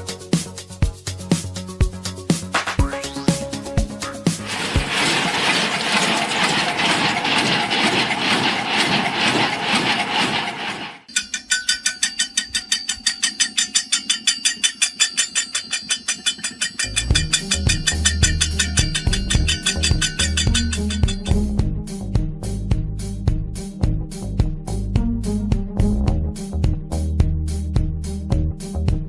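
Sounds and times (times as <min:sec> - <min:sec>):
bass-heavy music beat: 0:00.0 - 0:04.4, 0:16.9 - 0:29.0
sieve rattling with mud and shells: 0:04.3 - 0:10.2
metal taps on steel pipe: 0:11.1 - 0:21.4.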